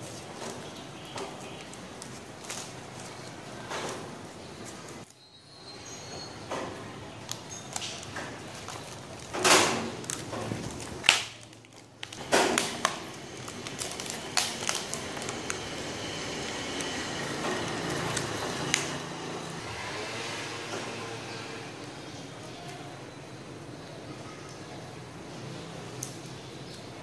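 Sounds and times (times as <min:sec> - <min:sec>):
packing tape ripping off roll: 0:00.0 - 0:05.1, 0:07.2 - 0:19.6
tape crinkling and rustling: 0:00.0 - 0:05.3, 0:06.7 - 0:19.6, 0:25.9 - 0:27.0.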